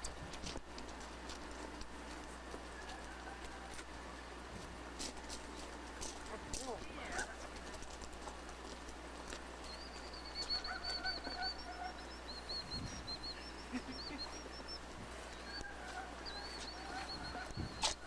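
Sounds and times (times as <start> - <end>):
birds chirping: 1.0 - 18.0
lower bird calls: 9.6 - 18.0.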